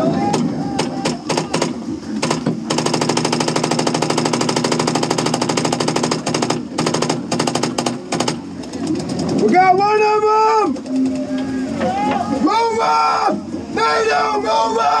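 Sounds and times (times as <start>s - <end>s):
paintball marker firing: 0.4s - 8.4s.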